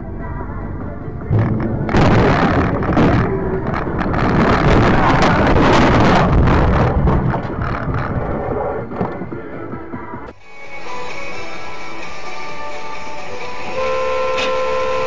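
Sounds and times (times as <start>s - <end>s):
knocks and thuds: 1.3s - 8.3s.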